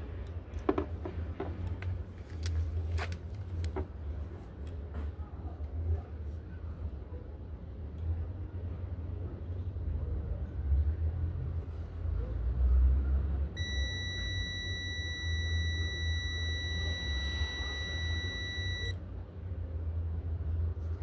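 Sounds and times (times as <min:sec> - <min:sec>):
low steady rumble: 0:13.6 - 0:19.0
multimeter continuity beep: 0:13.6 - 0:19.0.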